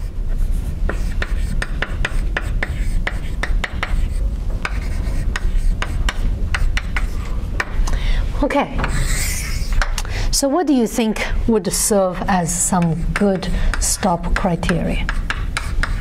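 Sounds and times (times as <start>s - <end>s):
chalk scratching on blackboard: 0.0s - 7.8s, 8.8s - 9.9s, 12.3s - 16.0s
steady low hum: 0.0s - 16.0s.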